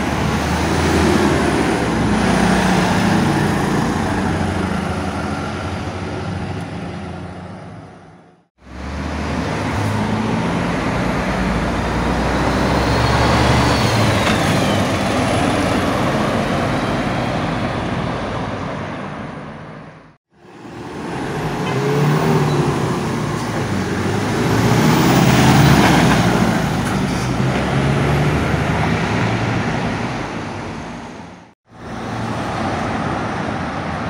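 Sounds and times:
cars passing: 0.0s - 34.0s
diesel truck passing: 0.0s - 34.0s.

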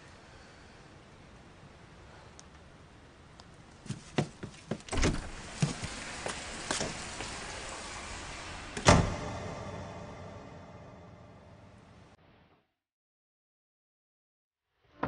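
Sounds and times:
loud thump: 8.8s - 12.0s.

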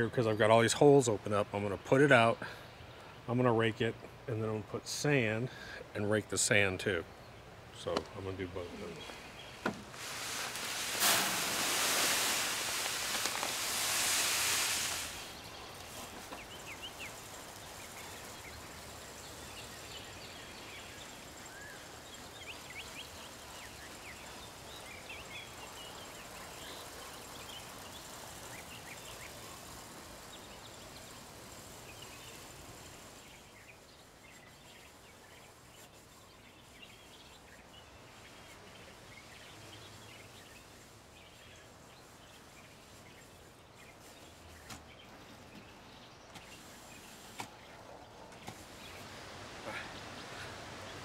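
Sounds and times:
faint birds chirping: 0.0s - 51.0s
granules poured into plastic hopper: 9.9s - 15.4s.

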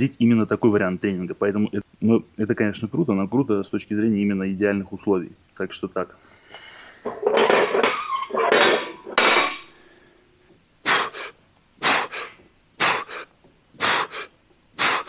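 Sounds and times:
person breathing forcefully: 6.2s - 7.2s, 10.8s - 15.0s
metal weight plates clanking: 7.2s - 9.7s.

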